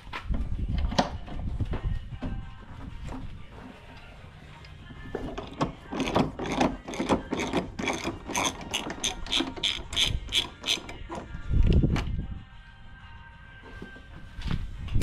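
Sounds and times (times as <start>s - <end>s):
socket ratchet clicking: 5.4s - 11.8s.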